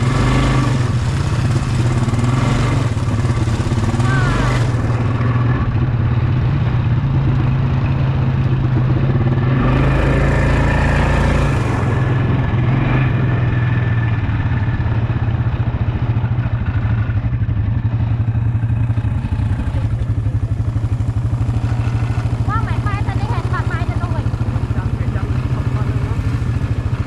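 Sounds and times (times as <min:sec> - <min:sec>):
wind rumble on microphone: 0:00.0 - 0:22.7
quad bike engine: 0:00.0 - 0:27.0.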